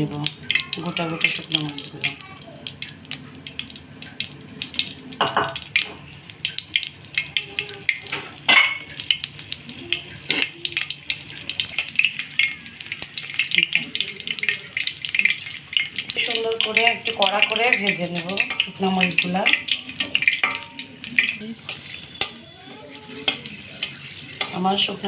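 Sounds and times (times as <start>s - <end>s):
chillies sizzling in hot oil: 0.0s - 25.0s
metal spatula stirring in wok: 14.7s - 25.0s.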